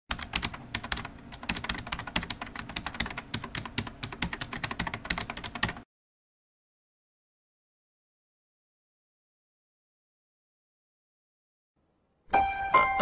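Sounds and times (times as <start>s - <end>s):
typing on computer keyboard: 0.1s - 5.8s.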